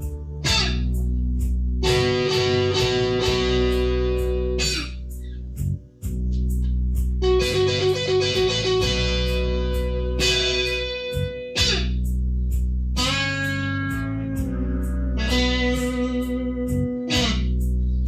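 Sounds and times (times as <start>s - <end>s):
overdriven electric guitar blues lead: 0.4s - 0.9s, 1.8s - 5.0s, 7.2s - 11.9s, 13.0s - 17.6s.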